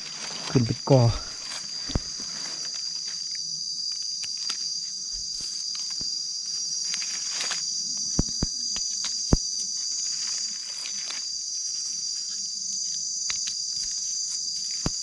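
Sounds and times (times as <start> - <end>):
high-pitched insect drone: 0.0 - 15.0.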